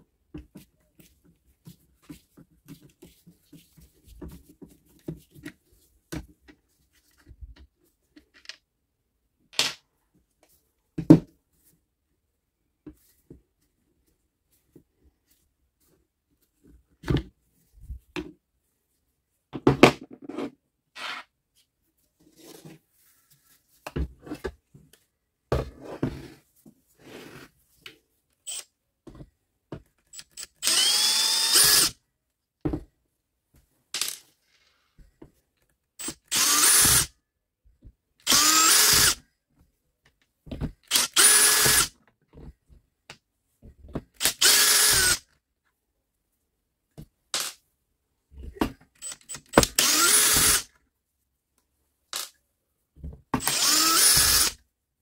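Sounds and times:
cordless drill motor whine: 0:30.4 - 0:31.9, 0:36.3 - 0:37.1, 0:38.3 - 0:39.2, 0:40.9 - 0:41.9, 0:44.3 - 0:45.2, 0:49.8 - 0:50.6, 0:53.4 - 0:54.6
tools and parts clicking: 0:52.1 - 0:52.4.

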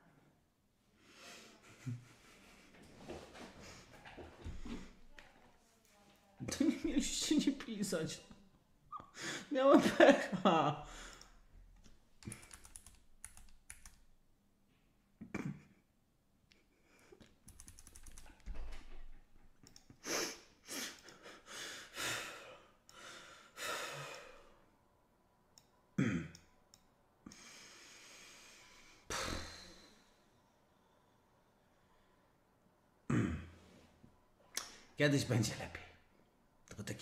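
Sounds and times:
computer keyboard clicks: 0:11.1 - 0:14.1, 0:17.2 - 0:18.5
heavy breaths and sighs: 0:19.9 - 0:24.7, 0:27.2 - 0:32.4.

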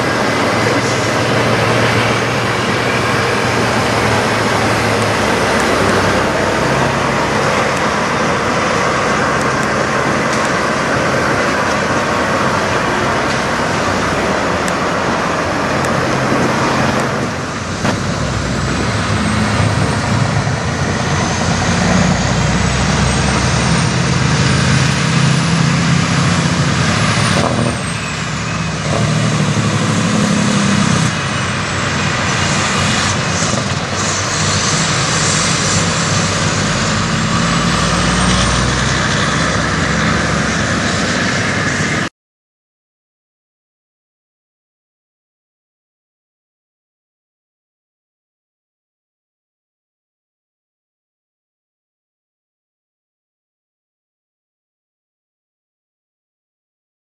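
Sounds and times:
diesel truck engine accelerating: 0:00.0 - 0:42.1.

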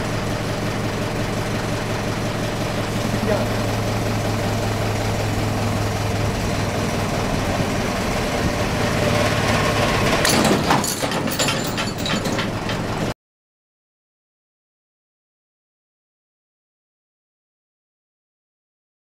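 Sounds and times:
vehicle engine running under load: 0:00.0 - 0:13.2
scattered clatter: 0:10.2 - 0:13.1.

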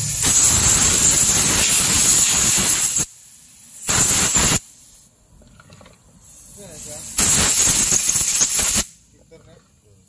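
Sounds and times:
compressed air blasts: 0:00.0 - 0:05.1, 0:06.2 - 0:09.1.

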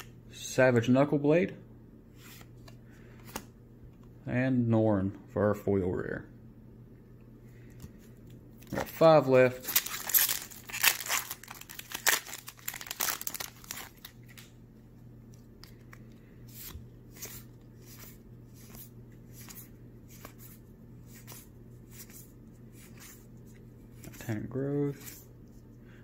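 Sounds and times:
foil wrapper tearing and crinkling: 0:09.6 - 0:14.4.

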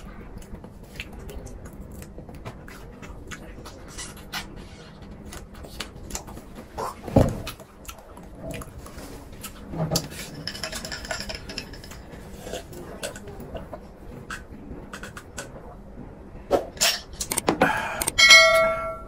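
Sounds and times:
chewing and sucking: 0:00.0 - 0:10.2.

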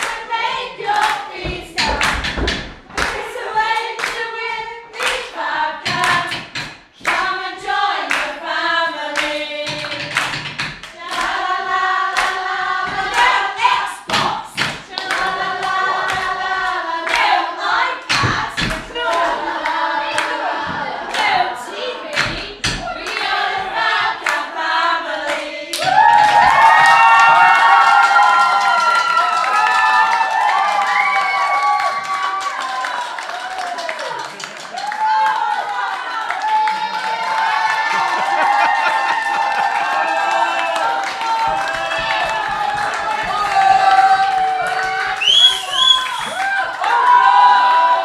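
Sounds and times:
hands clapping along: 0:00.0 - 0:00.2, 0:00.9 - 0:04.3, 0:04.9 - 0:07.4, 0:08.0 - 0:08.4, 0:09.1 - 0:11.5, 0:12.1 - 0:17.4, 0:18.0 - 0:21.5, 0:22.1 - 0:24.5, 0:25.2 - 0:48.0
women singing together: 0:00.0 - 0:27.0, 0:39.4 - 0:48.0.

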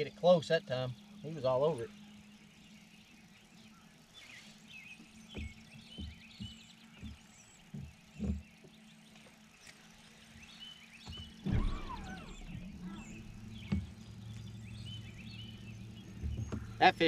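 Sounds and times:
small birds chirping: 0:00.0 - 0:17.0
steady low hum: 0:00.0 - 0:17.0
soft knocks on boat deck: 0:05.0 - 0:09.4, 0:11.0 - 0:17.0
sudden thump: 0:11.1 - 0:14.1.

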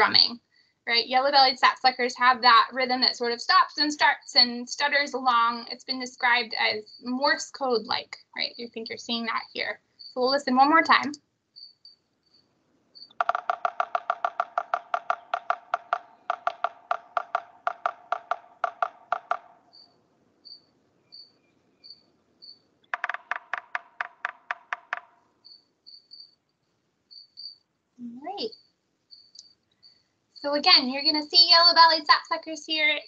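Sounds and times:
woodpecker drumming: 0:05.2 - 0:27.6, 0:28.4 - 0:31.8.

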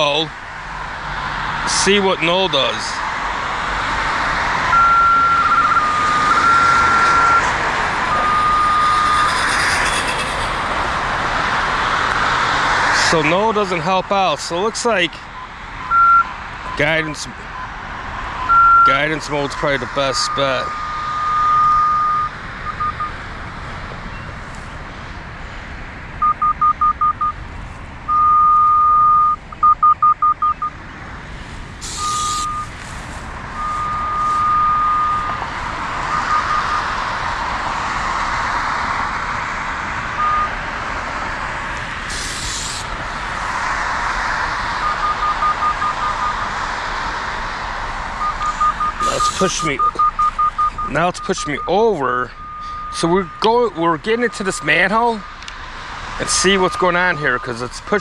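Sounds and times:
steady background noise: 0:00.0 - 0:58.0
locator receiver beeping: 0:04.7 - 0:07.5, 0:15.9 - 0:16.3, 0:18.5 - 0:18.9, 0:21.2 - 0:23.1, 0:28.1 - 0:30.8, 0:32.0 - 0:32.7, 0:33.6 - 0:35.4, 0:40.2 - 0:40.6, 0:48.2 - 0:53.6
short hisses: 0:31.8 - 0:33.1, 0:42.1 - 0:42.9.

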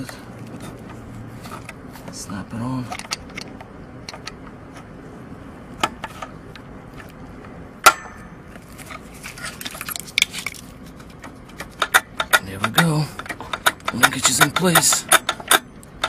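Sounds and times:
screwdriver clicking on metal: 0:11.9 - 0:15.6.

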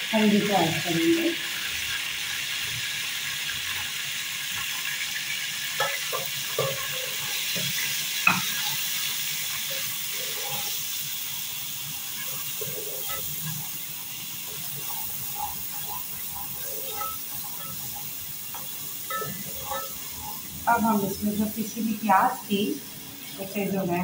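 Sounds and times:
paste sizzling in hot oil: 0:00.0 - 0:24.0
spoon knocking against pot: 0:05.8 - 0:07.7, 0:18.6 - 0:20.0.

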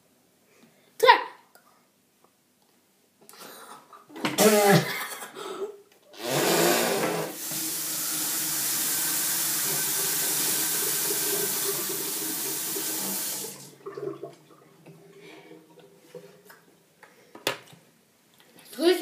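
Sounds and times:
water rushing from a tap: 0:06.2 - 0:16.2.

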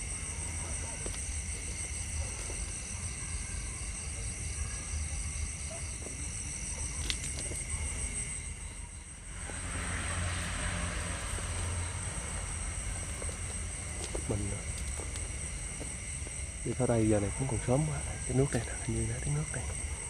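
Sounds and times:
insects trilling: 0:00.0 - 0:20.0
low rumble: 0:08.1 - 0:16.7.

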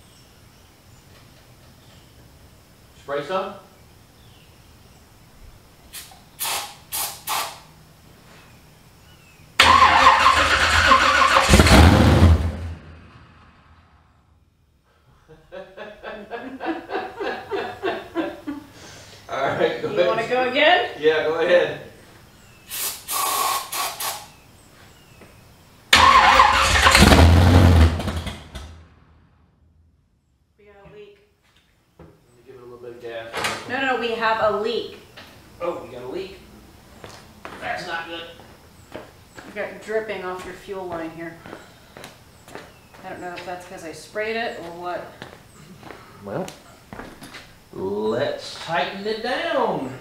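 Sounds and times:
aerosol can hisses: 0:05.9 - 0:07.7, 0:22.7 - 0:24.3
engine cranking on starter: 0:09.6 - 0:13.0, 0:25.9 - 0:28.8.

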